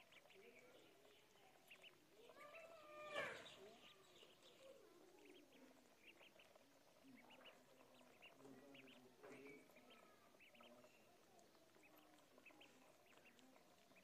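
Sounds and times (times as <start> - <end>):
ducklings peeping: 0.0 - 14.0.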